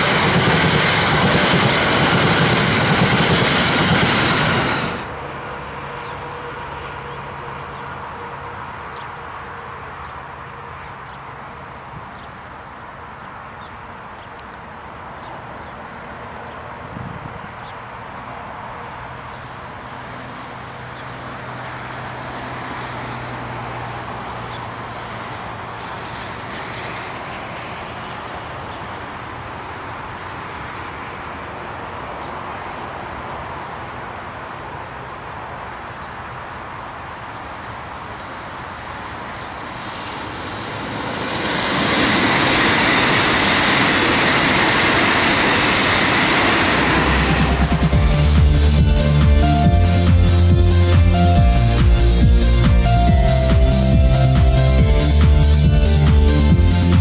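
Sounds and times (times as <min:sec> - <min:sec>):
electric train running rumble: 0:00.0 - 0:11.7, 0:21.4 - 0:31.2, 0:37.4 - 0:57.0.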